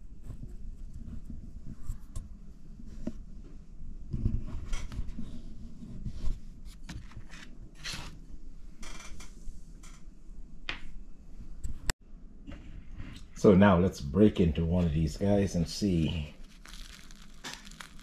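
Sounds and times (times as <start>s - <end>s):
soft rustling: 15.8s - 18.0s.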